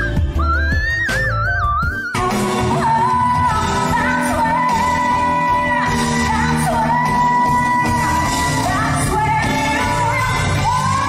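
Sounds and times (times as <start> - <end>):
band accompaniment: 0.0 - 11.0
woman singing: 2.2 - 11.0.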